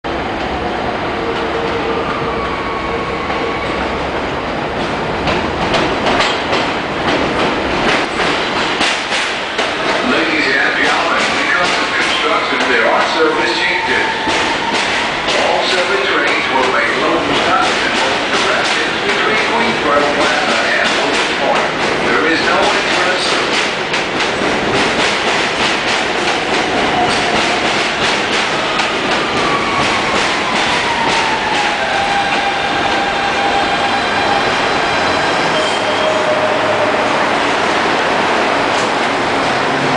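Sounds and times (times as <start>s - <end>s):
subway train rumble and whine: 0.0s - 39.9s
train wheels clacking over rail joints: 5.2s - 13.2s, 14.2s - 33.0s.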